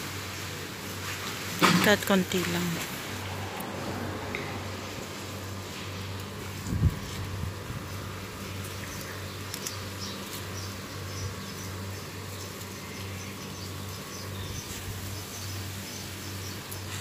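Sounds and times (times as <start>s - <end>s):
small birds chirping: 5.9s - 17.0s
leaves snapping: 8.0s - 10.8s.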